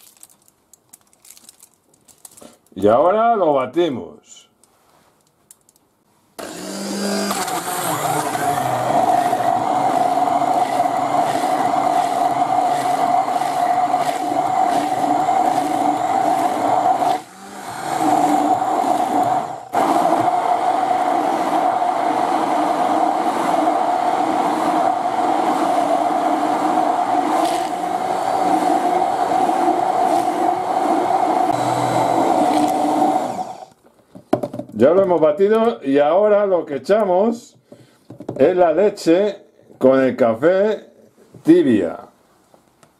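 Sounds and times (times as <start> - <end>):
hand blender whining: 6.4 - 33.8.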